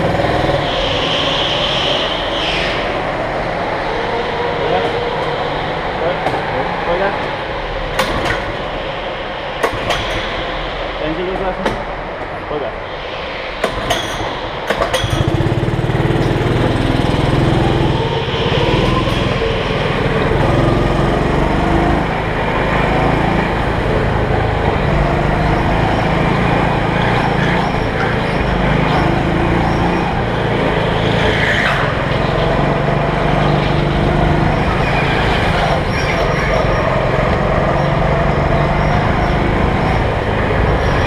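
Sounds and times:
go-kart engine revving: 0.0 - 3.0, 14.7 - 41.0.

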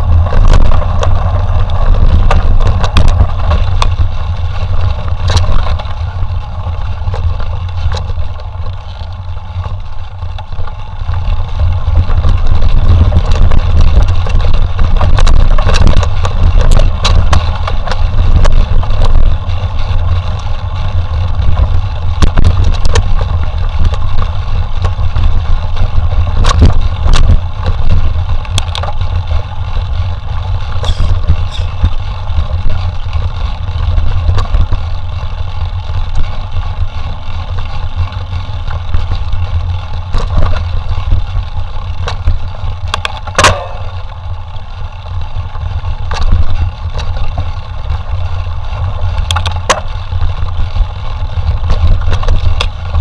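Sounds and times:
bike knocks and rattles: 0.0 - 53.0
wind rumble on microphone: 0.0 - 53.0
loud bike clack: 41.8 - 44.2.

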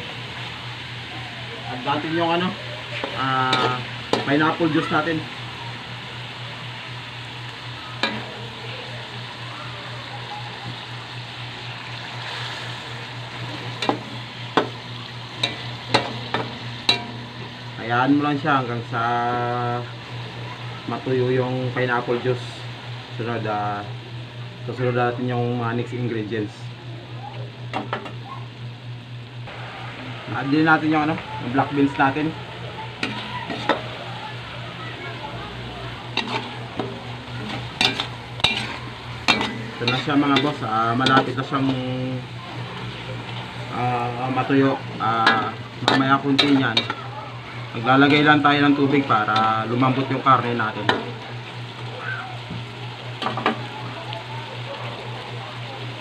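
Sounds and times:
meat sizzling in a wok: 0.0 - 56.0
metal spatula scraping wok: 36.1 - 36.6, 37.4 - 41.8.

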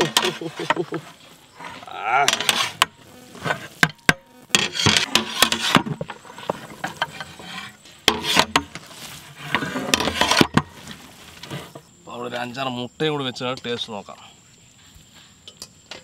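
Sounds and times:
rice scraping and rustling: 0.0 - 3.8, 4.5 - 11.9.

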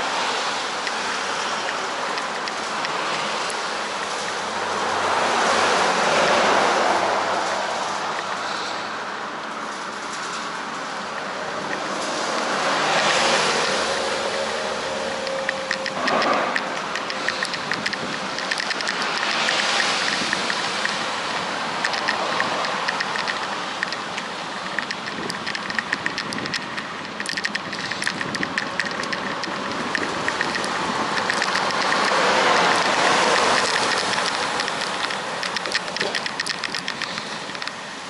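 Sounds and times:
bicycle wind and tyre rush: 0.0 - 38.0
fast light ticks: 0.8 - 4.5, 11.7 - 37.8.

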